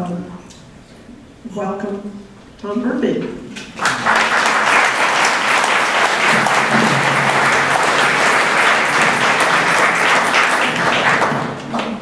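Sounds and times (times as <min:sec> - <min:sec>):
audience applauding: 0:03.7 - 0:12.0.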